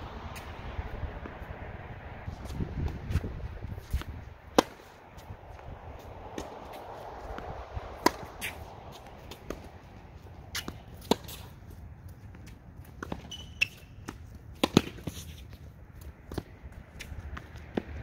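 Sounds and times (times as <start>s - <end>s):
tennis ball struck by rackets: 2.4s - 5.7s, 6.3s - 11.6s, 12.4s - 15.4s, 16.2s - 18.0s
short squeak: 13.2s - 14.0s.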